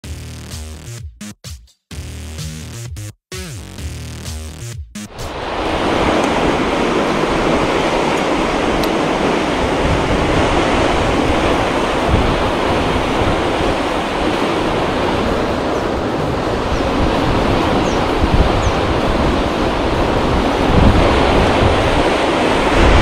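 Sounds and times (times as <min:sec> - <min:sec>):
turbulent water rushing: 0:05.1 - 0:23.0
wind rumbling on microphone: 0:05.2 - 0:23.0.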